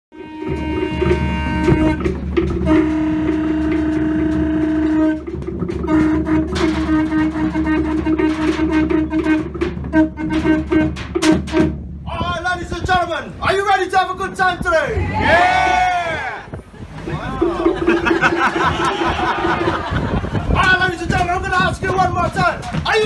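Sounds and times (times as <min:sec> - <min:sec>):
conch shell trumpets blowing: 0:00.1 - 0:11.8
sharp knocks: 0:00.4 - 0:12.4, 0:17.5 - 0:23.0.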